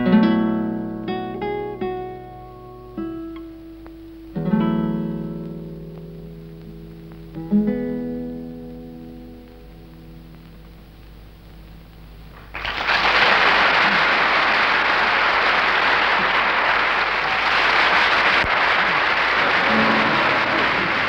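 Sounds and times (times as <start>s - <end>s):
classical guitar notes ringing: 0.0s - 10.4s, 19.7s - 21.0s
audience applause: 12.3s - 21.0s.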